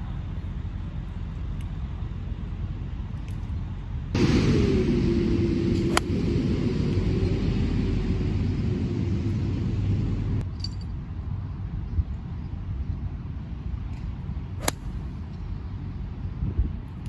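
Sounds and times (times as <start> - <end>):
steady rumble: 0.0 - 10.5, 13.1 - 17.0
low hum: 0.0 - 10.9, 14.1 - 16.5
golf club striking ball: 5.9 - 6.2, 14.6 - 15.1.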